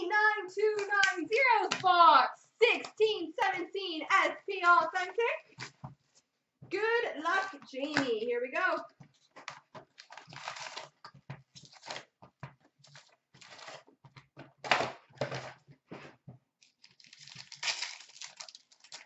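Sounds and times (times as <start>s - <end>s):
foil packs crinkling: 9.8s - 12.1s, 12.9s - 13.8s, 16.6s - 19.0s
foil pack tearing: 10.0s - 11.0s, 16.6s - 19.0s.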